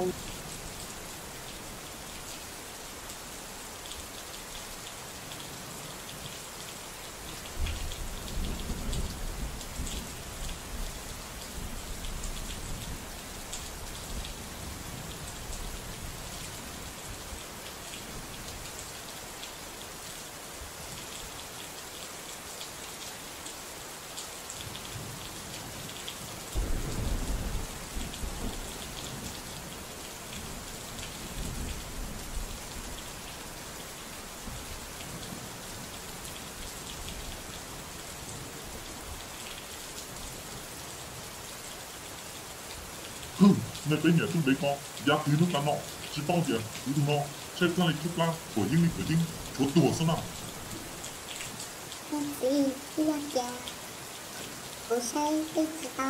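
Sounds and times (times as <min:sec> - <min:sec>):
heavy rain falling: 0:00.0 - 0:56.0
low rolls of thunder: 0:26.6 - 0:28.7.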